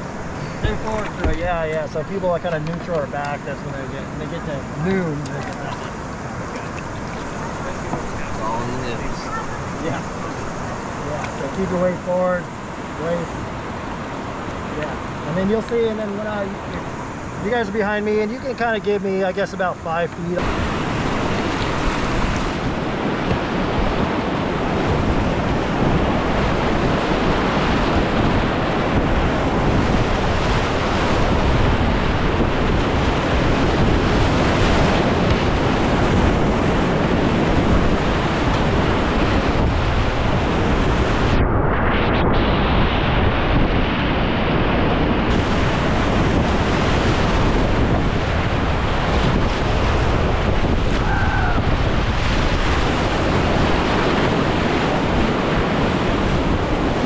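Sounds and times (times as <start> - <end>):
river rapids rushing: 0.0 - 11.8, 20.2 - 41.2
wind buffeting microphone: 0.0 - 57.0.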